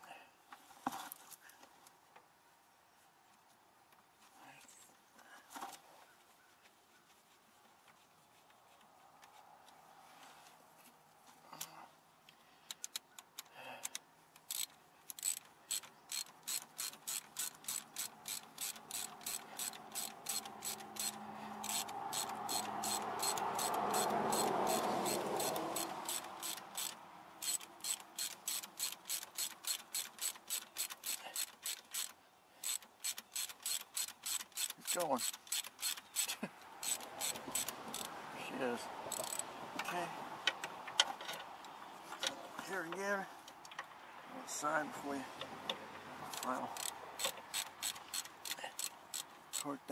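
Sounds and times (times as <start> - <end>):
ratchet wrench clicking: 12.7 - 38.1, 39.1 - 39.5, 46.3 - 49.7.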